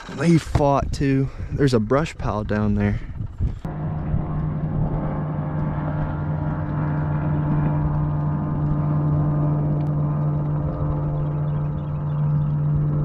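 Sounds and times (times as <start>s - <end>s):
electric motor humming: 3.6s - 13.0s.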